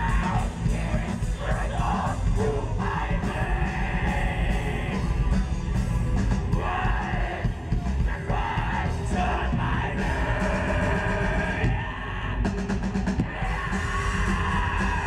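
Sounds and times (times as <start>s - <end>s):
harsh shouted vocal: 0.0s - 5.4s, 6.3s - 15.0s
fast dense drumming: 0.0s - 15.0s
guitars: 0.0s - 15.0s.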